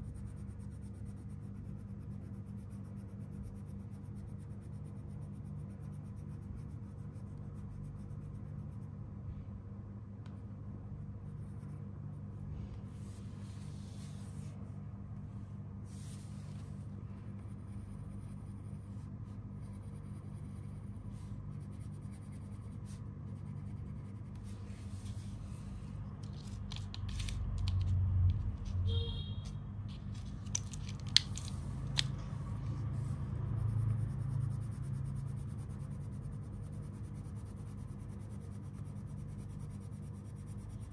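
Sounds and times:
crayon scratching on paper: 0.0 - 8.9, 17.5 - 25.2, 33.0 - 40.9
steady low hum: 0.0 - 40.9
crayons clicking and bumping: 30.1 - 32.2.

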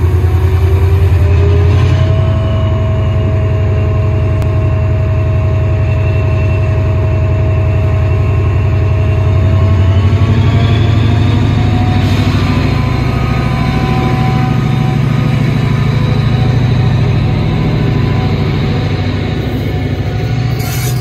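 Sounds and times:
diesel locomotive engine rumbling: 0.0 - 21.0
engine whine: 0.0 - 21.0.

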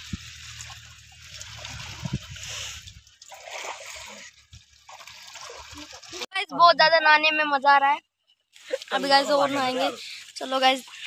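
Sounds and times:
water splashing in pool: 0.0 - 6.4.

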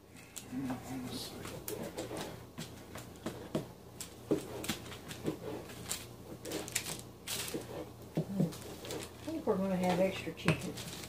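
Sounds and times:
hands patting dough: 0.6 - 11.0
paper rustling: 4.0 - 10.0, 10.6 - 11.0.

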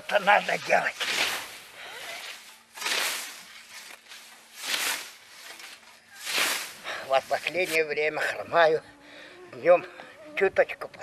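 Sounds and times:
scythe swishing through tall grass: 0.0 - 7.9.

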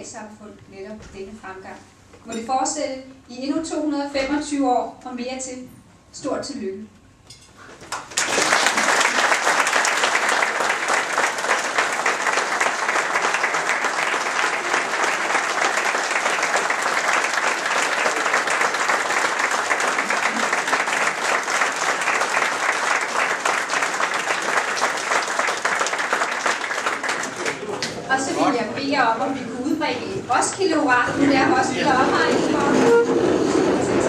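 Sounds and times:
crowd applauding: 7.8 - 28.1.

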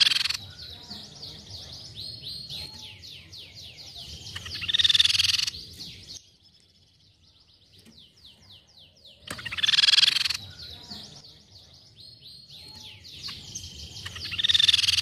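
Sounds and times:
bird harsh chattering: 0.0 - 6.1, 9.2 - 11.2, 12.6 - 15.0.

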